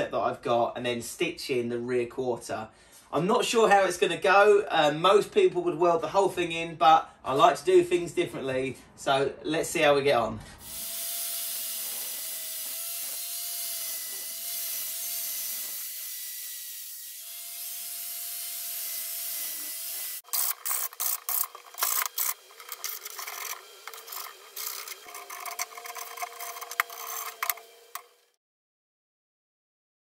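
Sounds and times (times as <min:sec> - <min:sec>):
power tool cutting steel: 0:10.6 - 0:28.4.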